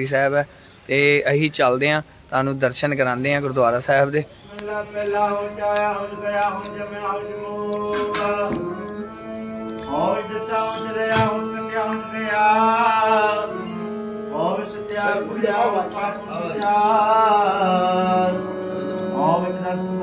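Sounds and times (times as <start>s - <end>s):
person singing ornamented melody: 4.4s - 20.0s
steady held drone: 4.4s - 20.0s.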